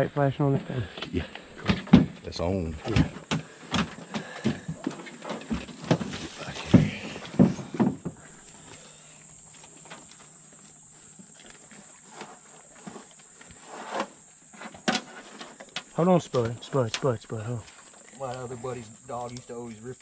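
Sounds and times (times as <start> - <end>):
high insect drone: 0.0 - 20.0
knocks and thumps in boat: 1.6 - 8.2.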